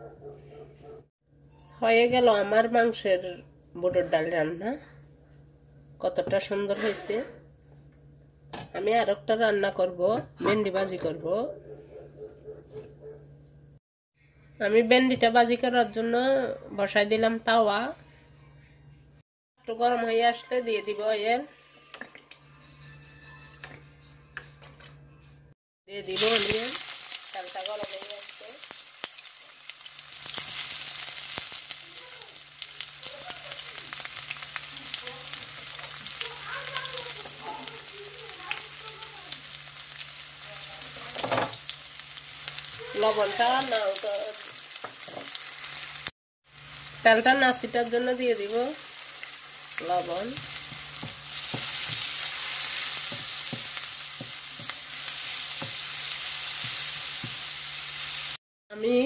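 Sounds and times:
onions sizzling in oil: 0:26.0 - 0:58.4.

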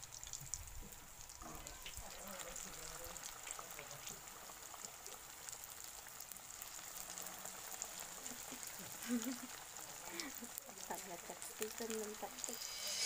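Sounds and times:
oil sizzling and crackling: 0:00.0 - 0:13.0.

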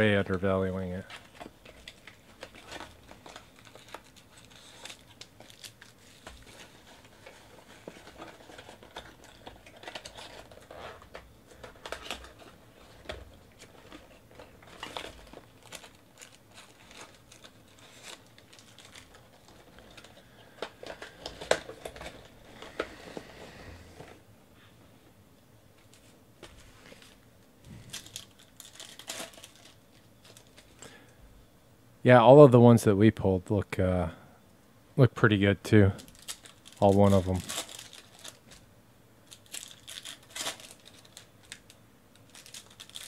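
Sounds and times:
wrappers torn and crinkled: 0:00.9 - 0:22.8, 0:27.8 - 0:30.8, 0:36.0 - 0:38.6, 0:39.2 - 0:43.0.

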